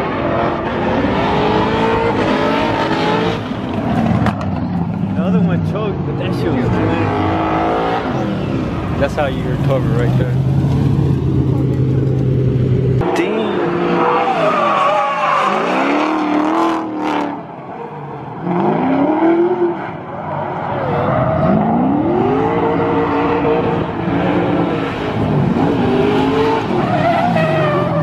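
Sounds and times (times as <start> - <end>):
car engines revving hard: 0.0 - 28.0
tyres squealing on tarmac: 13.8 - 15.9, 26.7 - 28.0.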